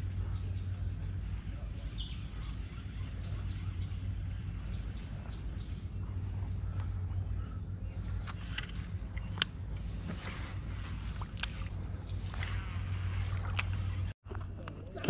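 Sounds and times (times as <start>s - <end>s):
birds chirping: 0.0s - 14.2s
steady low rumble: 0.0s - 15.0s
faint clicks: 8.1s - 14.8s.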